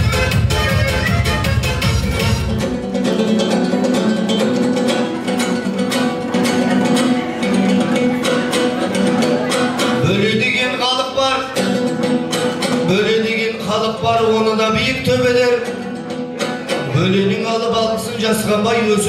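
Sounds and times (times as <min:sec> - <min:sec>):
lute strummed: 0:00.0 - 0:19.0
person singing: 0:06.4 - 0:11.9.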